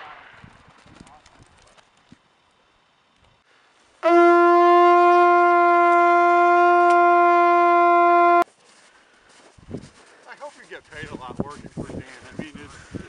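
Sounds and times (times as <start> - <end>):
hunting horn long note: 4.0 - 8.4.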